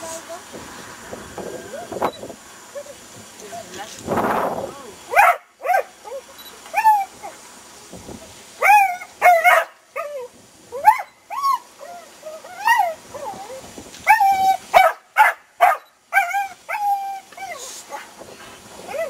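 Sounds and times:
dog barking high-pitched: 5.1 - 7.4, 8.6 - 11.6, 14.1 - 18.1
dog whining: 5.1 - 7.4, 8.6 - 15.0, 15.7 - 18.1.

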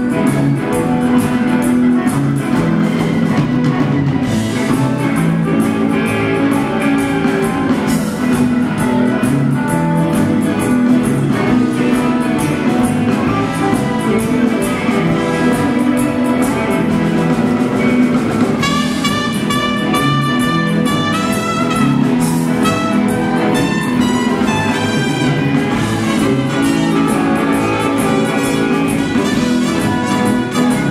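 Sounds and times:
rock band jamming: 0.0 - 30.9
trumpet led brass holding notes: 18.6 - 30.9.

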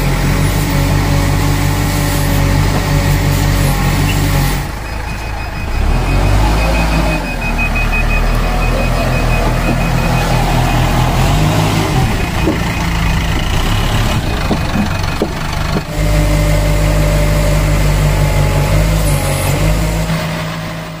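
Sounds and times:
construction machine engines droning: 0.0 - 21.0.

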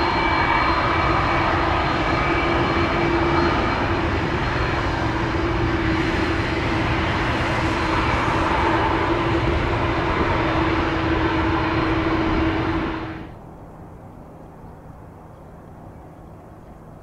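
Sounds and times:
jet engines running: 0.0 - 13.5.

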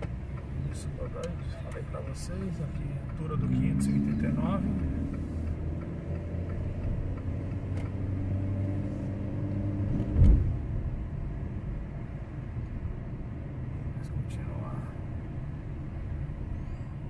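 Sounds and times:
car engine running: 0.0 - 17.0
road noise: 0.0 - 17.0
sharp thump: 9.9 - 10.6.

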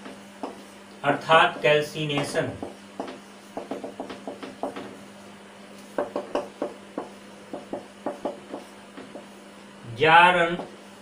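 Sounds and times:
marker tapping on whiteboard: 0.0 - 0.6, 1.5 - 5.0, 5.9 - 9.4, 10.6 - 10.8.

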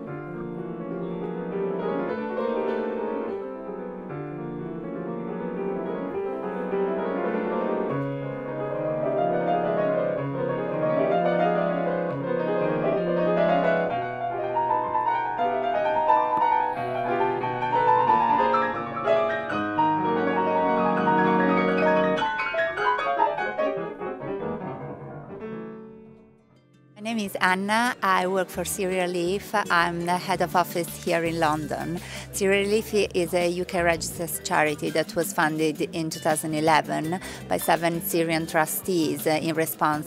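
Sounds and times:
solo piano: 0.0 - 27.0.

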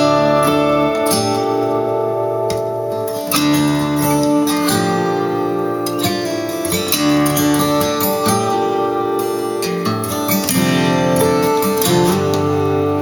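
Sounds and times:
acoustic guitar music: 0.0 - 13.0.

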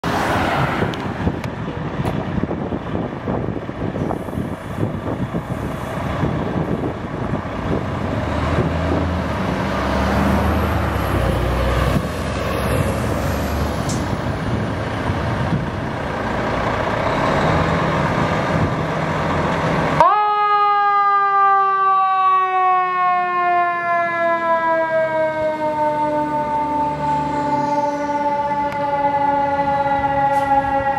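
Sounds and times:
fire engine siren: 0.0 - 30.9
diesel engine running: 1.0 - 20.0.

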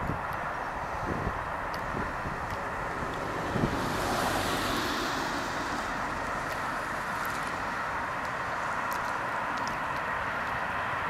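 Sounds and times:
wind on microphone: 0.0 - 7.6
distant road traffic: 0.0 - 11.0.

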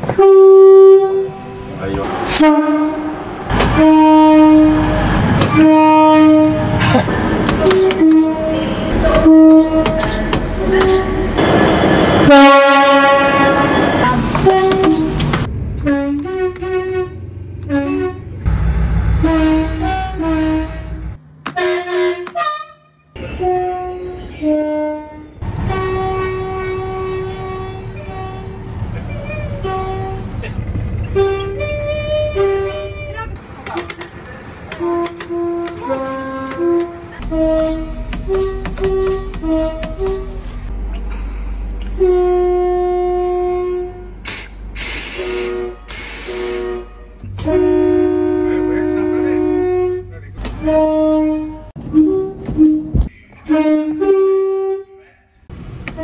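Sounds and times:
two-tone train horn: 0.1 - 1.6, 2.3 - 6.8, 7.7 - 10.0, 10.6 - 15.2, 15.8 - 18.4, 19.1 - 28.6, 29.2 - 30.4, 31.1 - 33.2, 34.7 - 40.2, 41.9 - 44.3, 45.0 - 55.0
sharp hisses of air: 44.3 - 46.6.

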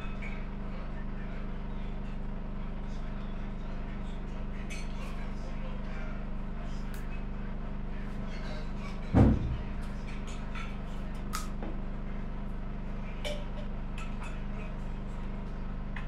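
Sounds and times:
steady low hum: 0.0 - 16.0
dull low thump: 9.2 - 9.7.

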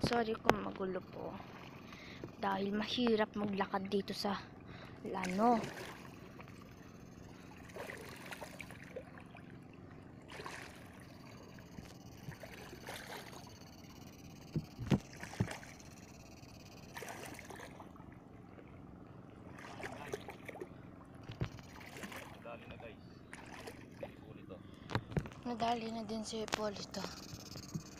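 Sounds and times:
legs wading through marsh water: 1.2 - 2.5, 4.5 - 14.0, 15.0 - 16.1, 16.8 - 25.5.

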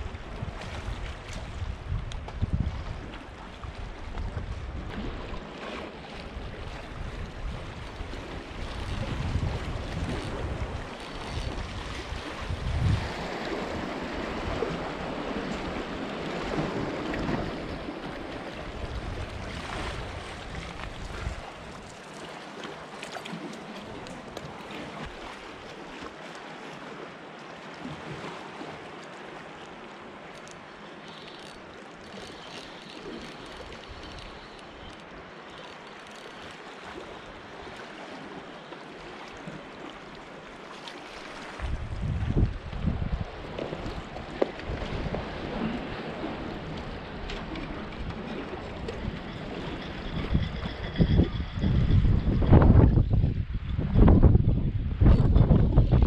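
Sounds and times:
wind buffeting microphone: 0.0 - 5.4, 6.3 - 22.0, 41.6 - 56.0
sea water lapping against concrete: 0.0 - 50.8.

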